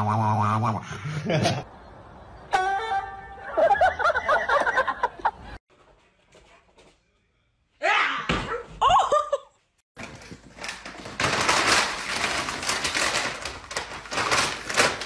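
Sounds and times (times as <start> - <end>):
plastic sheet crinkling: 10.0 - 15.0.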